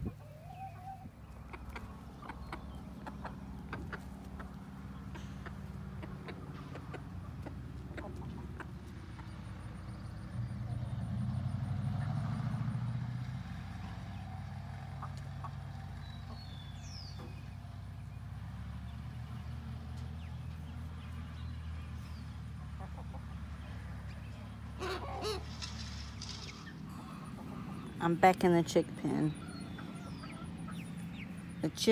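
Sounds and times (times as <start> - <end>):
chickens clucking: 0.0 - 12.2, 13.2 - 31.9.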